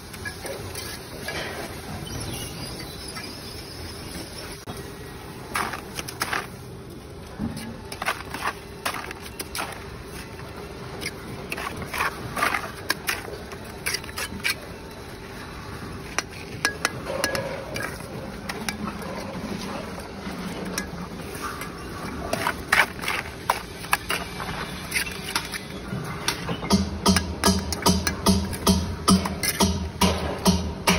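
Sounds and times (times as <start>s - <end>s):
trowel scraping mortar: 7.6s - 14.7s, 16.2s - 25.8s
trowel clinking against bricks: 16.2s - 30.5s.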